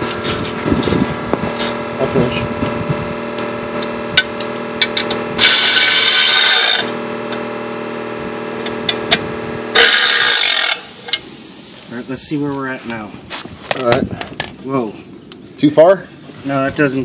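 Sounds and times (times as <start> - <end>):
power tool tightening bolts: 4.2 - 6.9, 9.8 - 11.3.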